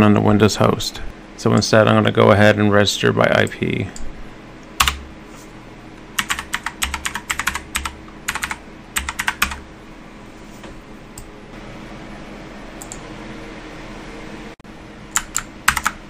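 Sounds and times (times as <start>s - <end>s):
computer keyboard typing: 4.8s - 5.0s, 6.1s - 9.6s, 15.2s - 16.0s.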